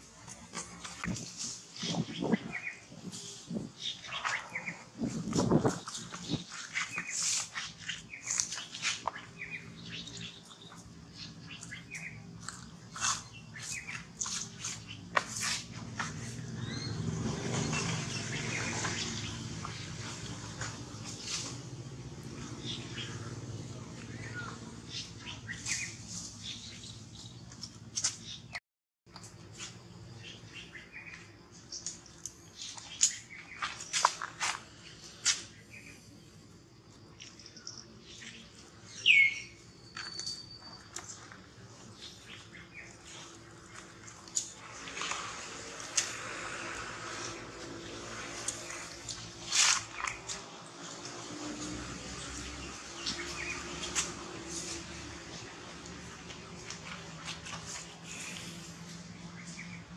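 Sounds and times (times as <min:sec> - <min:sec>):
animals chirping and squeaking: 0:00.0 - 0:28.6, 0:30.1 - 0:36.2, 0:37.1 - 0:59.9.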